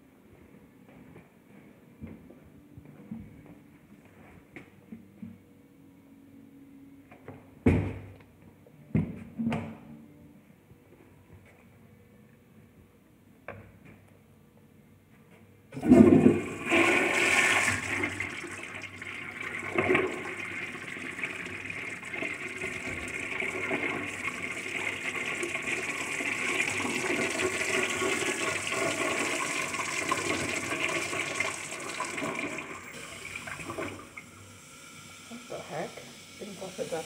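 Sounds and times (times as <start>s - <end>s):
toilet flushing: 15.7s - 37.0s
refill water rushing: 15.8s - 35.8s.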